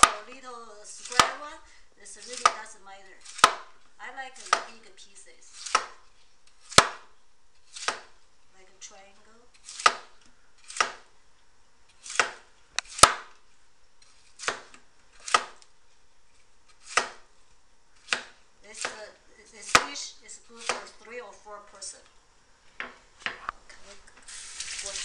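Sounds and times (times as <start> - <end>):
cleaver chopping on wooden board: 1.1 - 1.4, 3.3 - 3.7, 5.6 - 6.0, 6.7 - 7.1, 7.8 - 8.1, 9.7 - 10.1, 10.7 - 11.0, 12.1 - 13.3, 14.4 - 15.6, 16.8 - 17.2, 18.0 - 19.0.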